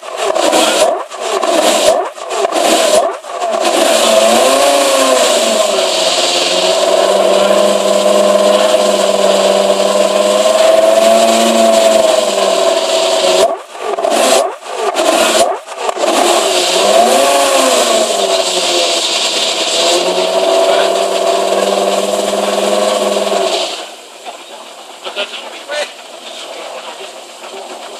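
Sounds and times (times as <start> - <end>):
engine throttle blips: 0.0 - 27.9
sports car engine running loud: 0.0 - 27.9.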